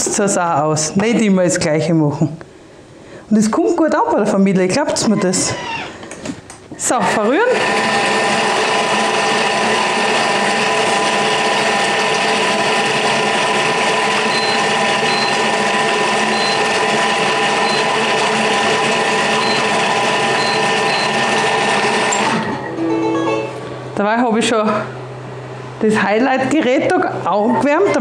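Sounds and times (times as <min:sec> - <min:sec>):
food processor motor whine: 0:07.0 - 0:22.6.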